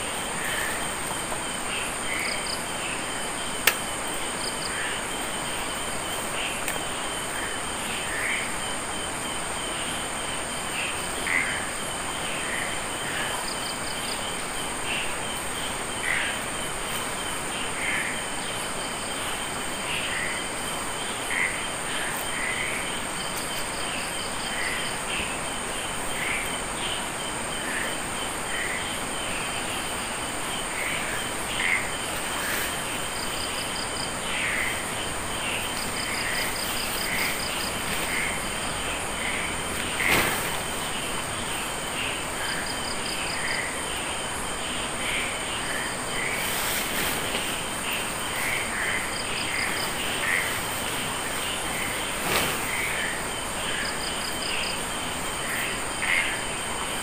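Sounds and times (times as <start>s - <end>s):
crickets trilling: 0.0s - 57.0s
low insect calls: 0.0s - 57.0s
rapid pulsed insect trills: 0.0s - 57.0s.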